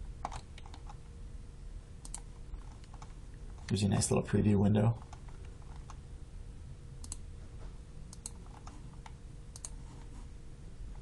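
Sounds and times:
faint steady hum: 0.0 - 11.0
computer mouse clicking: 0.2 - 1.0, 2.0 - 3.8, 5.0 - 6.0, 7.0 - 7.2, 8.1 - 9.9.

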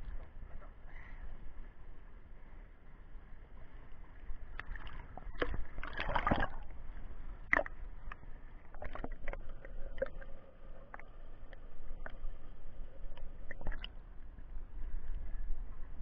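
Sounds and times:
muffled underwater sound: 3.4 - 16.0
water sloshing and gurgling: 3.4 - 16.0
water splashing: 4.5 - 6.8, 7.5 - 7.8, 8.7 - 11.2, 13.1 - 14.0.

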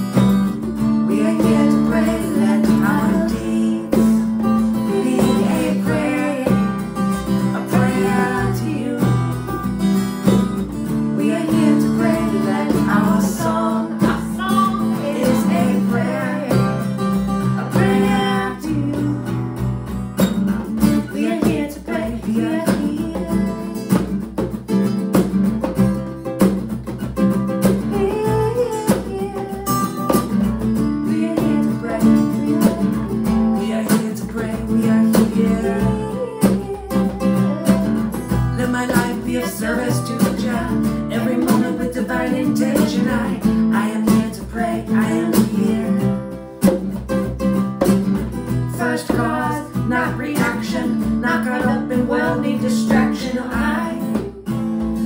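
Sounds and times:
strummed acoustic guitar: 0.0 - 55.0
man and woman singing together: 0.7 - 19.6, 20.8 - 24.3, 27.8 - 46.7, 48.5 - 55.0
hand drum patted: 9.0 - 16.8, 20.2 - 43.4, 44.0 - 49.5, 50.1 - 55.0.

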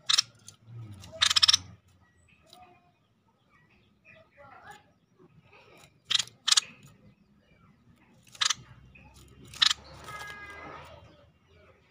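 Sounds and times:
bird giving harsh calls: 0.0 - 1.8, 5.8 - 7.0, 8.2 - 8.8, 9.4 - 10.9.

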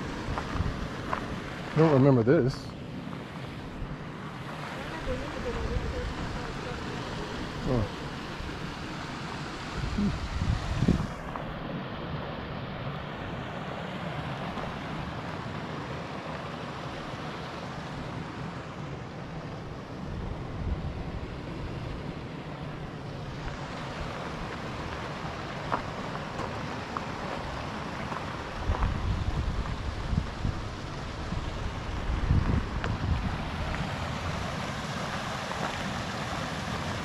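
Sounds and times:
wind buffeting microphone: 0.0 - 1.8, 9.6 - 11.6, 28.5 - 34.9.

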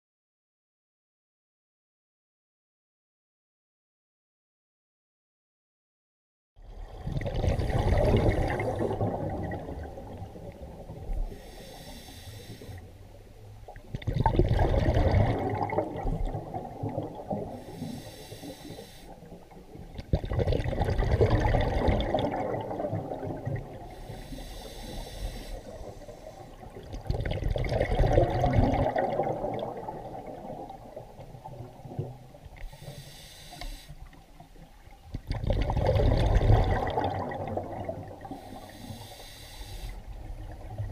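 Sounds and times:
exhaled bubbles rushing: 6.7 - 11.0, 13.8 - 17.6, 19.9 - 23.9, 26.6 - 32.5, 35.1 - 38.3
regulator hiss on inhale: 11.2 - 13.0, 17.5 - 19.5, 23.8 - 26.7, 32.6 - 34.4, 38.2 - 40.2.

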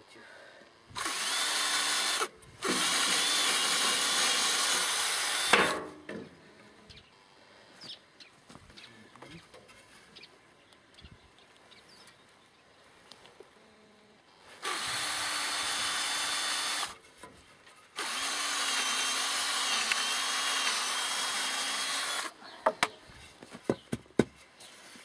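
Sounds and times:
power drill motor whine: 1.0 - 5.7, 14.6 - 17.0, 18.0 - 22.3.

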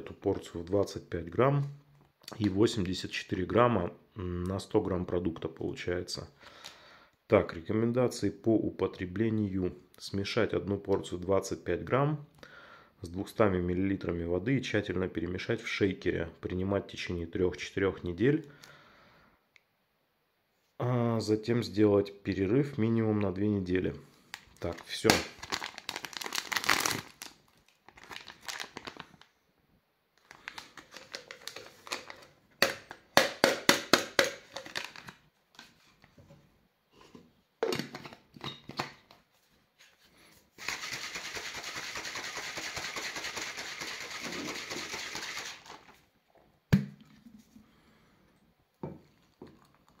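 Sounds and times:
foil sachet crinkling: 24.4 - 29.3, 30.2 - 32.2, 40.6 - 46.0
shaker being shaken: 40.6 - 45.9.

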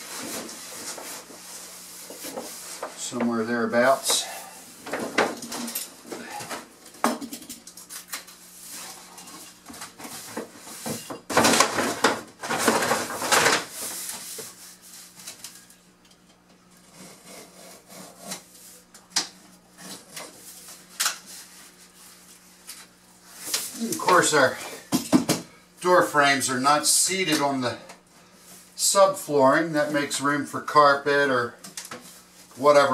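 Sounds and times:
paper rustling and sliding: 11.7 - 15.6.

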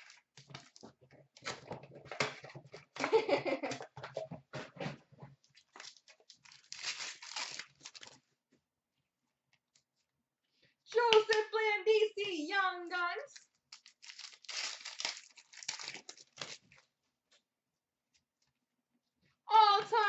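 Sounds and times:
card packs crinkling and rustling: 0.0 - 2.5, 5.5 - 8.2, 13.3 - 16.9
pack wrapper tearing open: 5.7 - 8.2, 13.3 - 16.8.

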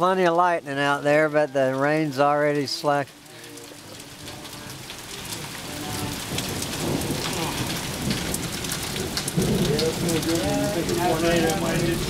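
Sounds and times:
rain falling: 0.0 - 12.0
thunder rumbling: 3.9 - 12.0.

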